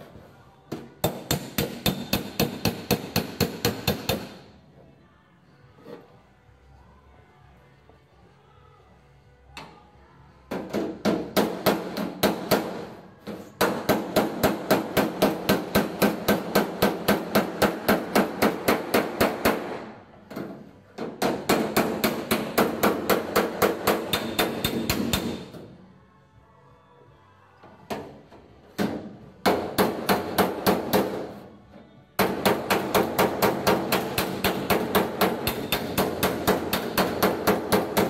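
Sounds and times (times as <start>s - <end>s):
hammer tapping on metal: 32.2s - 38.0s.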